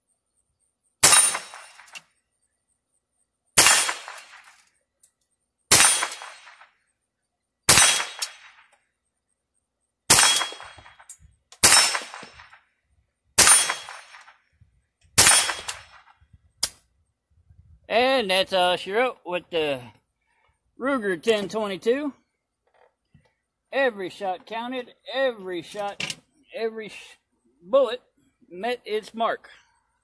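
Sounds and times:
rifle shots: 1.0 - 2.0, 3.6 - 4.6, 5.7 - 6.7, 7.7 - 8.6, 10.1 - 12.6, 13.4 - 14.4, 15.2 - 16.0.

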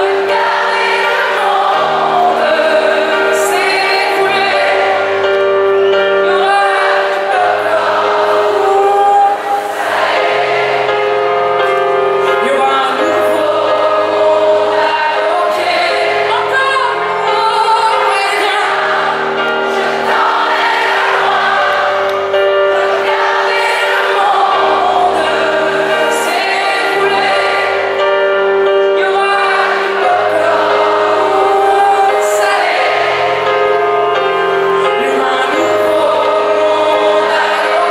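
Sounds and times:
live pop band with piano: 0.0 - 37.9
many voices singing: 0.0 - 37.9.

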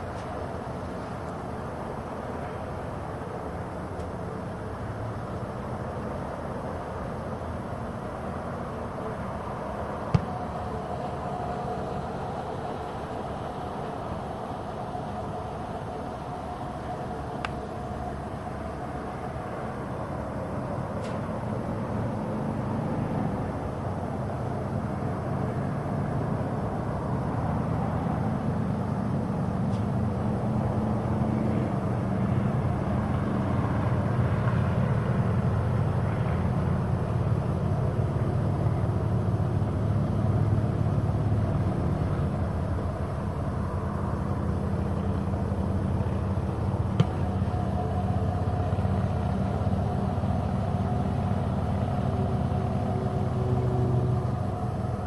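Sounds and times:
low outdoor rumble: 0.0 - 55.0
sharp knock: 10.2 - 10.4.

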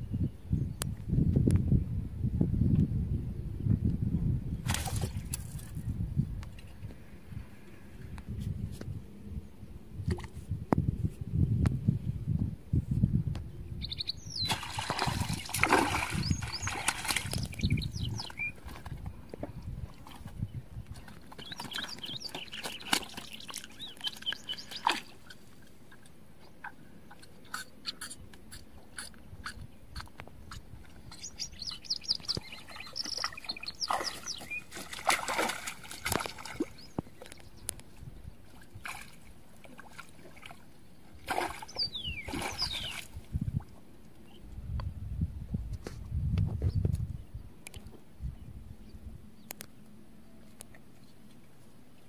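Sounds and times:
birds chirping: 13.5 - 18.8, 20.0 - 39.0, 40.9 - 43.1
fish flapping and splashing: 14.4 - 17.7, 21.1 - 25.1, 32.4 - 37.3.

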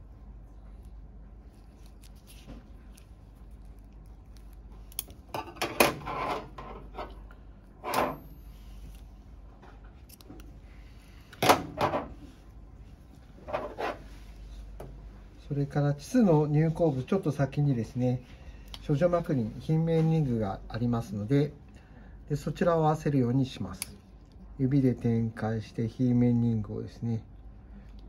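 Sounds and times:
low steady hum: 0.0 - 28.0
glove rustle: 0.6 - 4.9.

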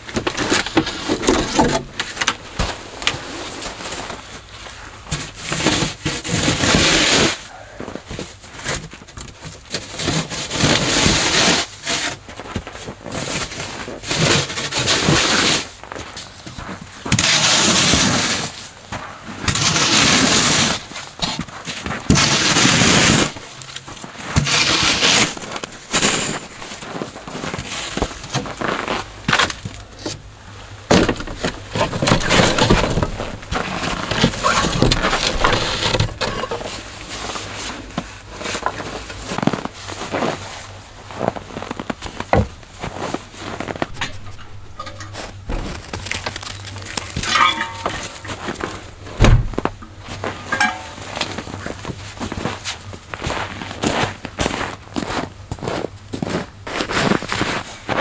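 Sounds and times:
board scraping snow: 0.3 - 4.4, 5.2 - 7.5, 9.8 - 15.8, 17.1 - 29.1, 31.4 - 44.0
knocks and clatter of handled objects: 30.9 - 36.9, 43.6 - 51.9.

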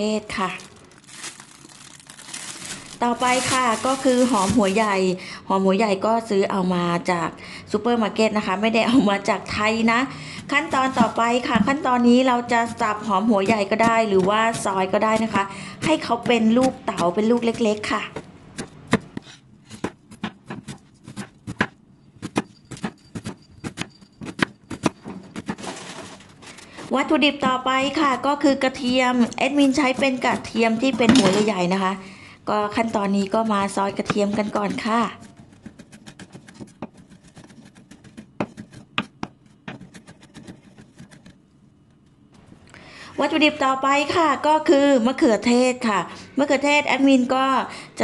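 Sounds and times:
knife chopping on wooden board: 13.5 - 25.6, 34.0 - 41.3.

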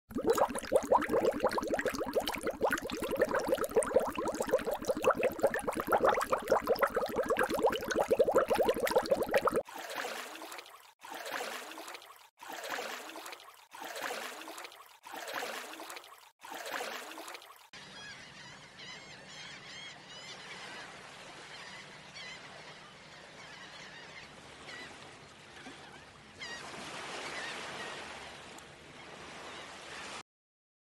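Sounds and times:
running water: 0.1 - 17.7
water splashing: 0.1 - 17.7.

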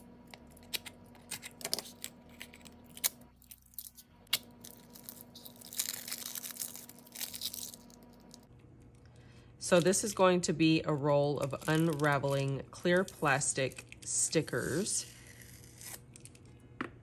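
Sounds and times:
wrapping tearing: 1.4 - 8.5
plastic wrapping crinkling: 3.5 - 8.5, 11.3 - 14.0.

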